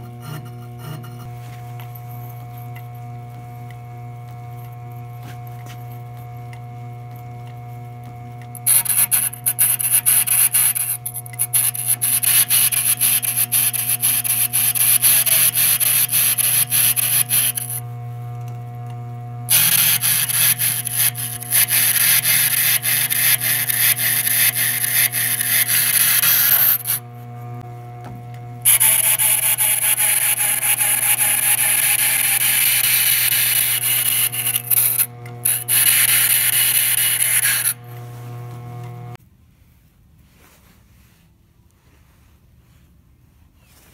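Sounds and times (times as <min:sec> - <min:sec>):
tool rasping against grindstone: 0:00.0 - 0:01.3, 0:08.6 - 0:17.8, 0:19.5 - 0:27.0, 0:28.7 - 0:37.8
motor humming: 0:00.0 - 0:39.2.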